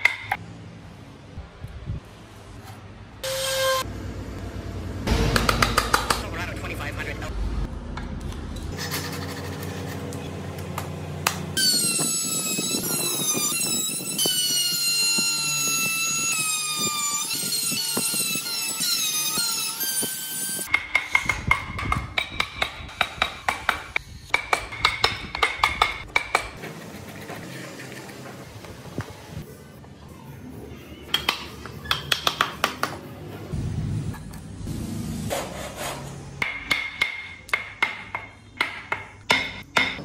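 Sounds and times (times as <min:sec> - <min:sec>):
rotary carving tool whining: 0:11.6 - 0:20.7
chisel tapping wood: 0:31.1 - 0:33.0, 0:36.4 - 0:40.0.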